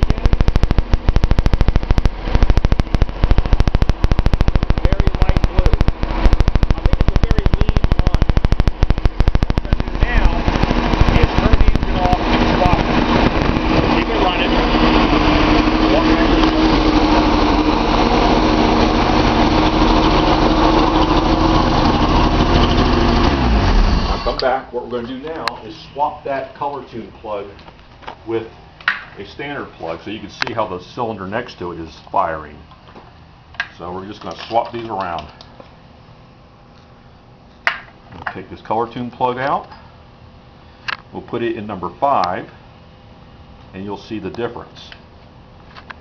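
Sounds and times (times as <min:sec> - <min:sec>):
engine idling with rapid ticking: 0:00.0 - 0:24.5.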